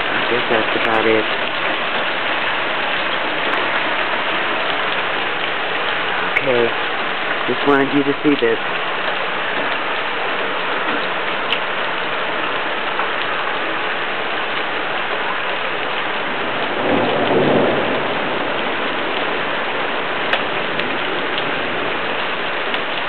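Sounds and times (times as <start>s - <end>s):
steady rain falling: 0.0s - 23.0s
low rumble of thunder: 16.2s - 22.8s.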